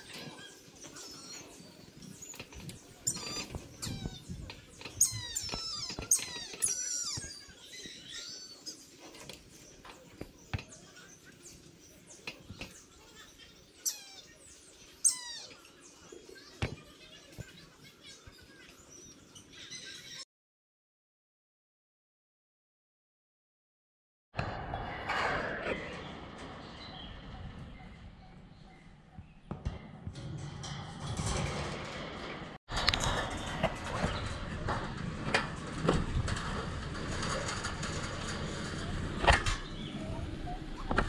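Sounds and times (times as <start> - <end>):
bird squealing calls: 3.1 - 8.7.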